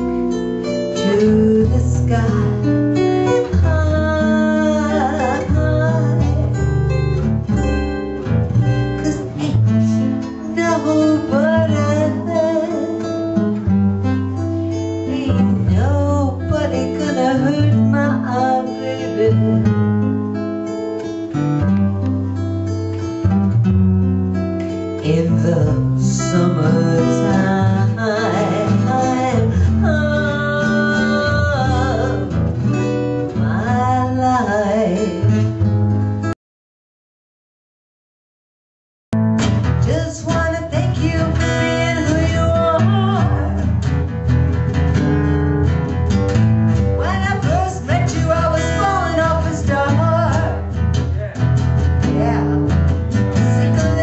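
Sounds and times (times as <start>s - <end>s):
strummed acoustic guitar: 0.0s - 36.4s, 39.2s - 54.0s
person singing: 0.9s - 6.8s, 9.0s - 13.1s, 15.0s - 19.7s, 25.0s - 32.4s, 33.4s - 35.6s, 39.8s - 43.8s, 47.0s - 50.6s, 52.0s - 54.0s.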